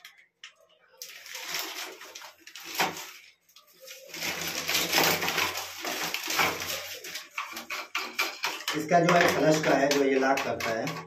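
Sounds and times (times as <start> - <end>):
plastic parts rubbing and clicking: 0.0 - 11.0
plastic scraping: 1.0 - 11.0.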